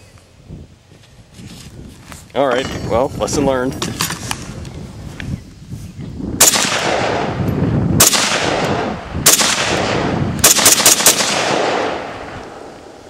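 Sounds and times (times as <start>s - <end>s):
gunshots with echo: 6.4s - 7.4s, 8.0s - 13.0s.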